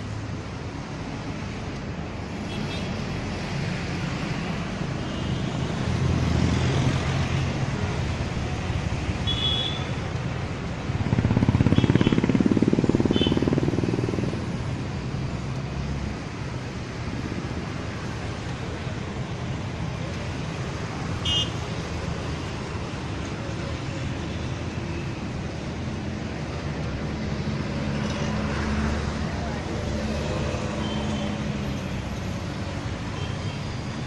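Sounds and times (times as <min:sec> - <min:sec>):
road traffic: 0:00.0 - 0:34.0.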